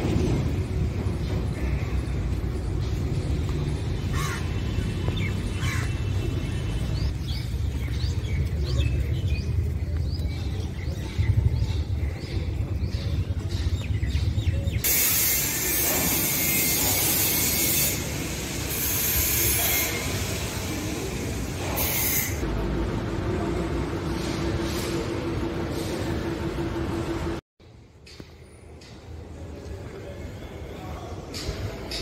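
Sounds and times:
loud steady hiss: 14.8s - 22.4s.

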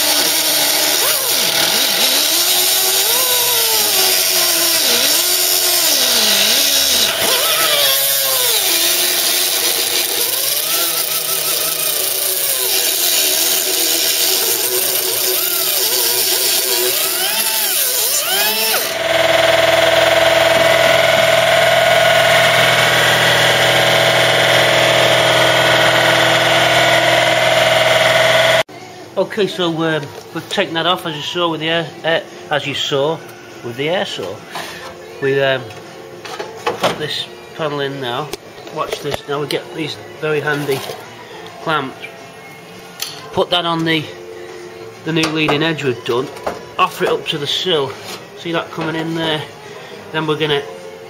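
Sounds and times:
air saw cutting sheet steel: 0.0s - 28.7s.

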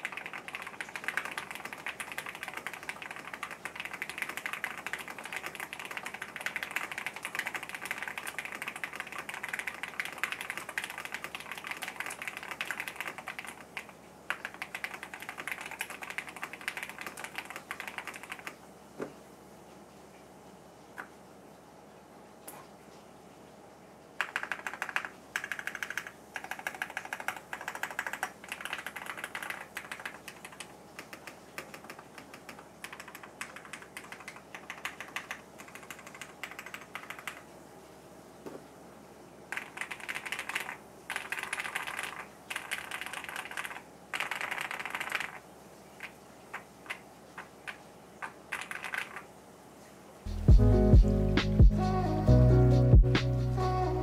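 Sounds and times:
mechanical keyboard typing: 0.0s - 18.6s, 24.2s - 37.4s, 39.5s - 49.3s.

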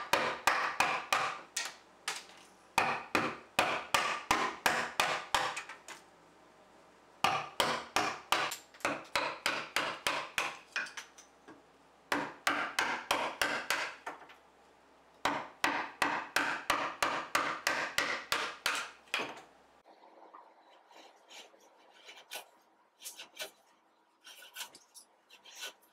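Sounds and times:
mallet striking chisel: 0.1s - 1.4s, 2.8s - 5.6s, 7.2s - 10.6s, 12.1s - 14.0s, 15.2s - 19.4s.

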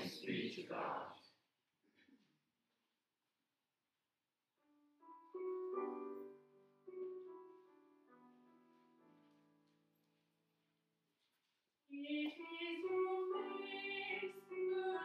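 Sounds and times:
piano playing sustained chords: 5.1s - 9.2s.

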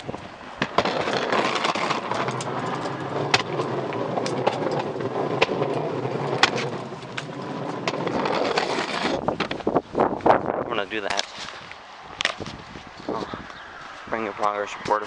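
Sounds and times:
trash can wheels rumbling on concrete: 0.0s - 9.7s.

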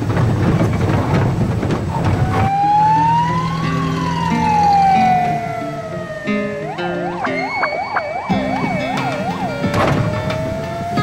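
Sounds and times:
sharp knocks: 0.0s - 2.6s, 8.3s - 10.6s
police siren wailing: 2.0s - 11.0s.

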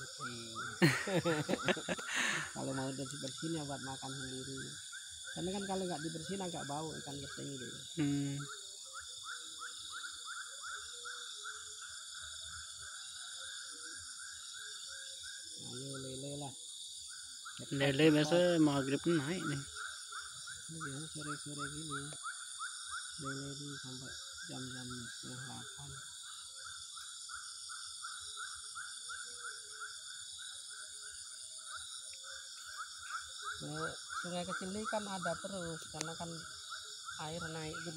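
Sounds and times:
high-pitched insect drone: 0.0s - 37.9s.

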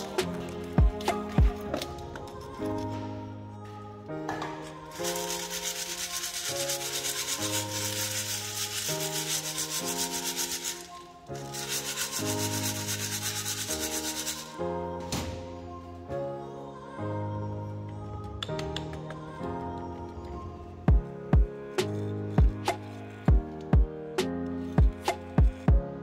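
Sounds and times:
soil rasping through wire sieve: 5.0s - 14.6s.

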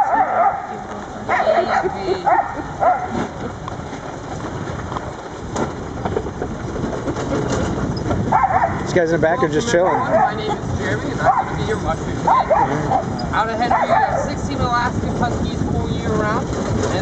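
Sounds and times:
dogs yipping: 0.0s - 3.3s, 8.2s - 14.3s
cart rolling over gravel: 0.0s - 17.0s.

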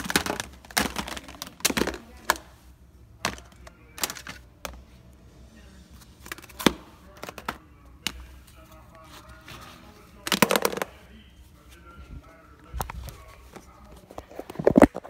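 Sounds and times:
plastic containers knocking: 0.0s - 2.5s, 3.2s - 4.9s, 6.3s - 8.3s, 10.2s - 11.0s.

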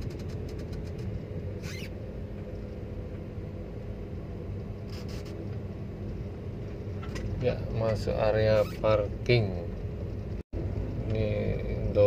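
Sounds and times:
car engine and tyre hum: 0.0s - 12.0s
brief high squeaks: 1.6s - 2.0s, 4.9s - 5.4s, 8.6s - 8.9s.

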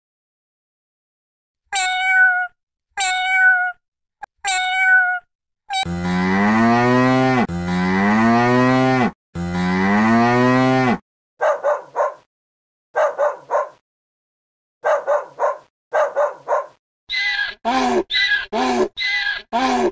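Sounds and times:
cat meowing: 1.7s - 5.8s
cow mooing: 5.8s - 11.0s.

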